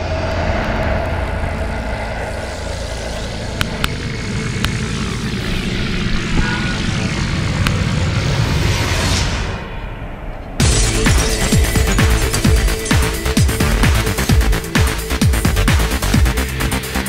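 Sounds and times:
car road noise from inside: 0.0 - 8.8.

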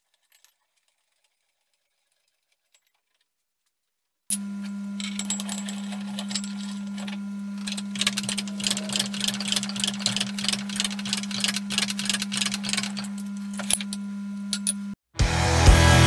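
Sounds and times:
hydraulic vise crushing steel tube: 4.3 - 14.8
low hum: 4.3 - 15.0
rapid ticking and clicking: 7.0 - 13.3.

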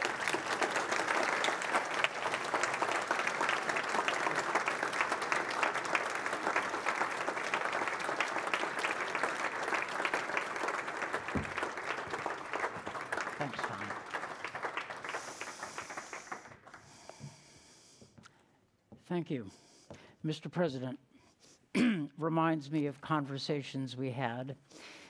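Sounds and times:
audience applauding: 0.0 - 17.1.

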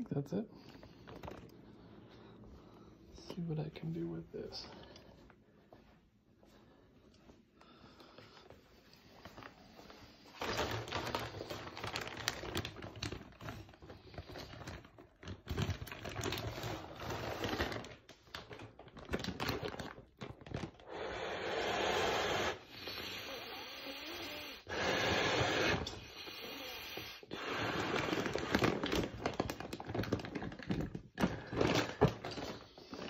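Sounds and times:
plastic bag crinkling: 0.6 - 1.8, 9.1 - 20.9, 27.8 - 33.0
breath blowing into bag: 20.8 - 29.1.

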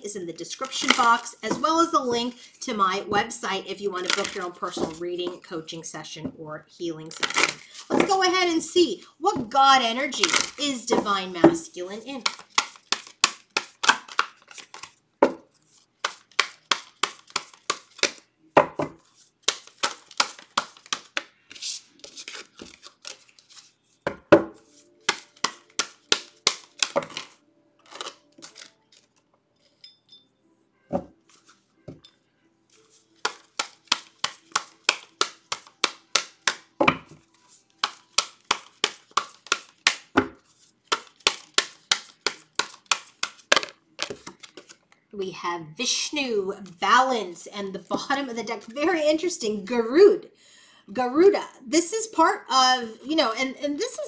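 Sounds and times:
cards shuffled by hand: 0.6 - 1.3, 4.0 - 5.0, 7.1 - 8.1, 10.2 - 11.1, 12.2 - 18.2, 19.0 - 23.8, 24.7 - 29.2, 32.7 - 36.7, 37.5 - 44.9.

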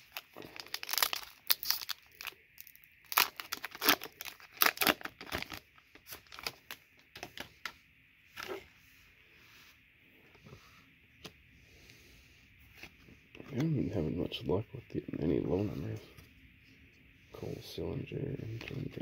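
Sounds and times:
foil wrapper tearing and crinkling: 0.0 - 7.4.

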